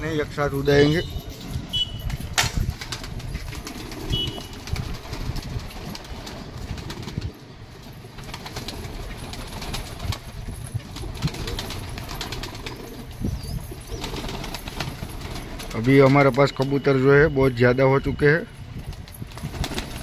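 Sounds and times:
pigeons flapping wings: 0:01.2 - 0:16.6, 0:18.7 - 0:20.0
pigeons cooing: 0:03.5 - 0:04.6, 0:11.0 - 0:15.7.

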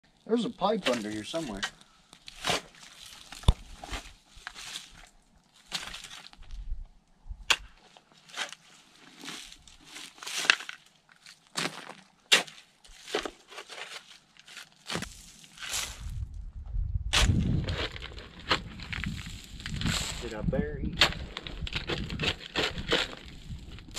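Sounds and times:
shovel digging into rocky soil: 0:00.8 - 0:06.4, 0:07.4 - 0:10.8, 0:11.6 - 0:16.2, 0:17.1 - 0:23.9.

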